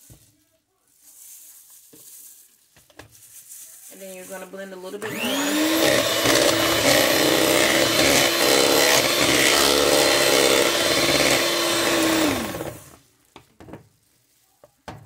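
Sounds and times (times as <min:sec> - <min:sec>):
beaters churning batter: 0:05.0 - 0:13.0
electric hand mixer whine: 0:05.0 - 0:13.0.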